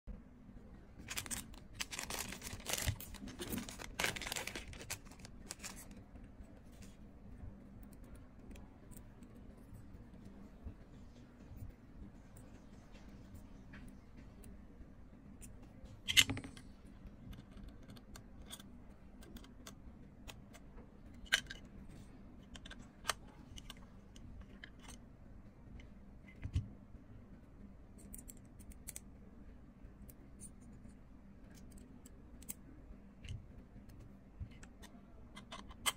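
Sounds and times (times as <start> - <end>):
plastic bag crinkling: 1.0 - 5.9.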